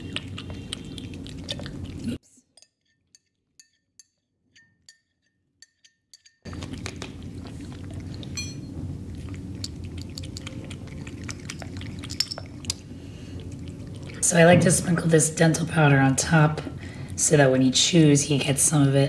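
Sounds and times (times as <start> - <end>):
cat chewing wet clicks: 0.0 - 2.2, 6.5 - 8.4, 9.0 - 14.2
steady low hum: 6.5 - 19.0.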